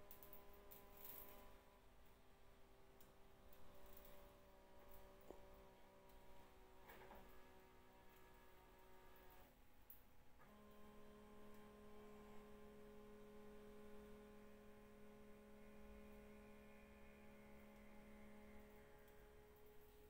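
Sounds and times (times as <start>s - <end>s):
faint electric motor hum: 0.0s - 20.0s.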